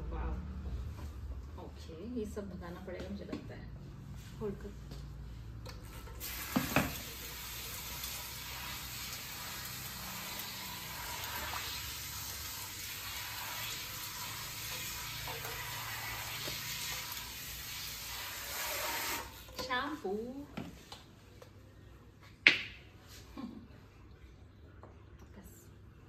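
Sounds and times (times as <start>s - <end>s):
shower sprayer spraying water: 6.0s - 19.6s.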